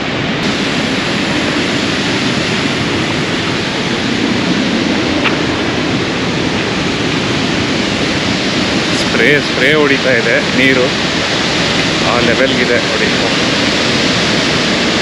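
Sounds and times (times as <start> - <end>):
waterfall roaring: 0.0 - 15.0.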